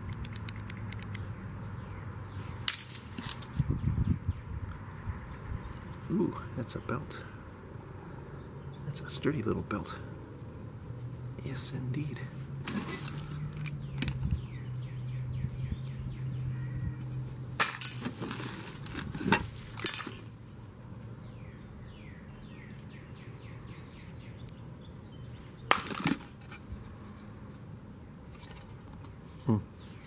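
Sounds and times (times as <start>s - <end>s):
sharp clinks of metal and glass: 12.7s - 13.9s, 19.3s - 20.5s.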